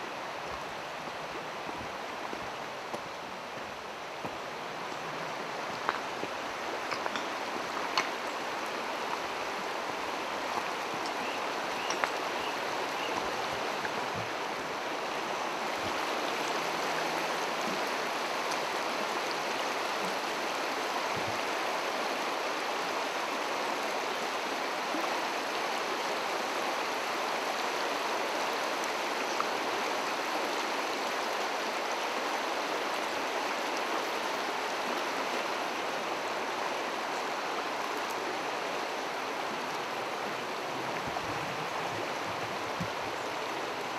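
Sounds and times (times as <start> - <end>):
water rushing over rocks: 0.0 - 43.9.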